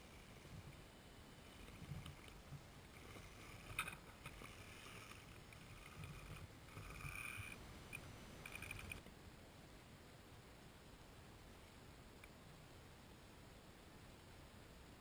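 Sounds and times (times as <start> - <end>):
small motor and gear whine: 0.0 - 9.0.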